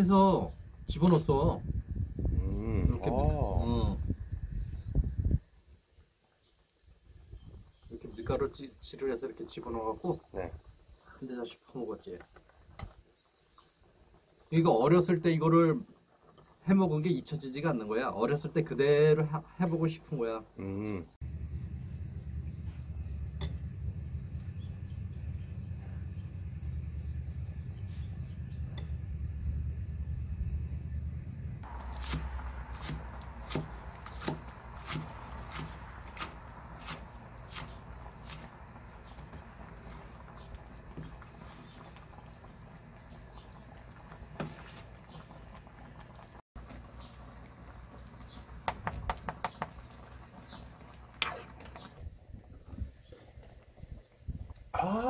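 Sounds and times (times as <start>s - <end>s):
gas burner flame rumble: 20.8s - 54.7s
stew bubbling: 31.6s - 55.0s.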